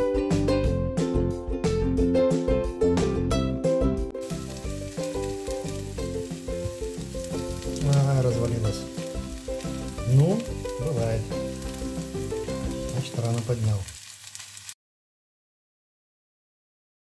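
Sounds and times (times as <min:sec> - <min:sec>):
light background music: 0:00.0 - 0:13.8
patties sizzling in hot oil: 0:04.2 - 0:14.8.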